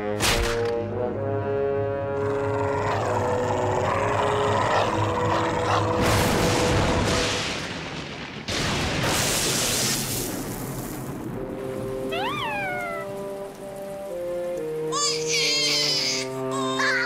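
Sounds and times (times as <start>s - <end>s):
brass-led cartoon music: 0.0s - 7.2s, 11.6s - 17.0s
crackling electric zap: 6.0s - 11.4s.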